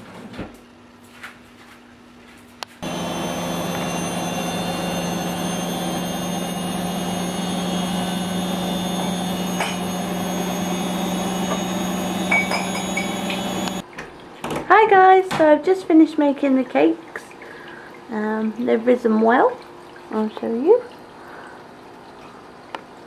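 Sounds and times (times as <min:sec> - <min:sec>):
oven fan motor hum: 0:02.8 - 0:13.8.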